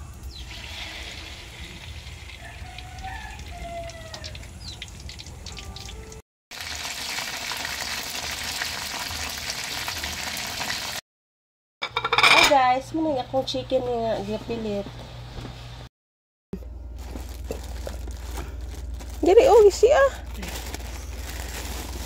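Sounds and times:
chicken deep-frying in oil: 0.0s - 11.0s
oil popping: 0.5s - 10.8s.

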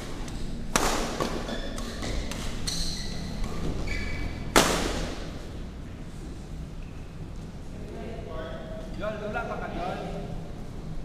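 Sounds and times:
rackets hitting shuttlecock: 0.0s - 3.8s, 4.5s - 5.4s
shoes squeaking on court floor: 1.2s - 4.5s.

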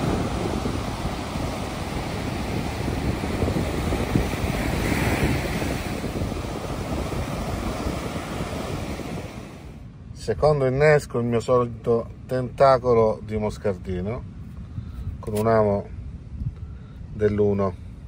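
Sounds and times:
surf washing up a beach: 0.0s - 9.8s.

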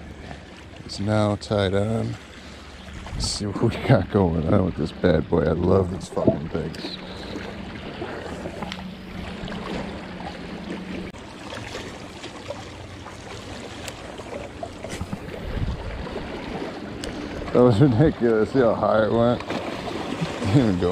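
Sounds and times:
small waves lapping on rocks: 0.0s - 20.9s
steady low hum: 4.2s - 11.1s
wind buffeting microphone: 14.9s - 16.6s.

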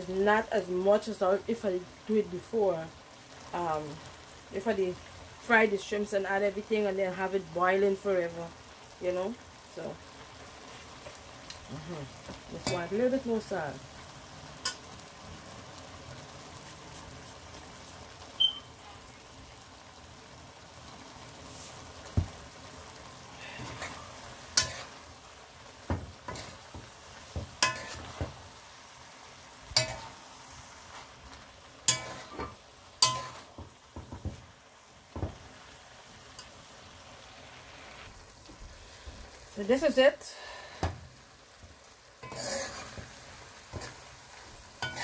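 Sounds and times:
steady sizzling hiss: 0.0s - 45.0s
metal spoon scraping metal pot: 42.2s - 43.0s.

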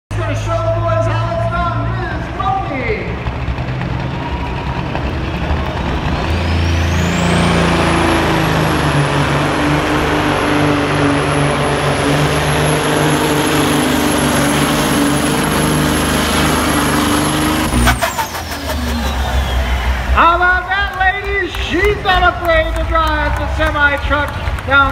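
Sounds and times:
diesel truck engine at full throttle: 0.1s - 24.9s
high engine whistle: 16.4s - 21.0s.

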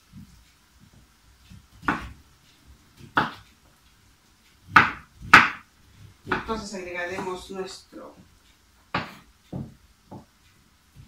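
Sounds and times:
knife chopping on wooden board: 1.5s - 2.2s, 3.0s - 3.4s, 4.6s - 5.6s, 6.2s - 6.6s, 8.9s - 10.3s.

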